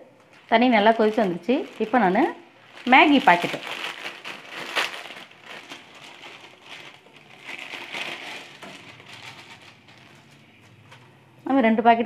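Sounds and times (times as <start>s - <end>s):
plastic packets crinkling: 0.2s - 10.9s.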